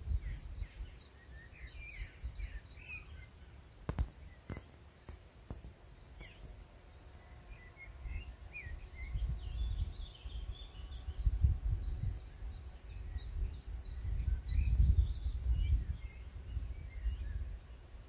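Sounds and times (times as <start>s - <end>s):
wind gusts on microphone: 0.0s - 3.3s, 5.5s - 18.0s
small birds chirping: 0.0s - 18.0s.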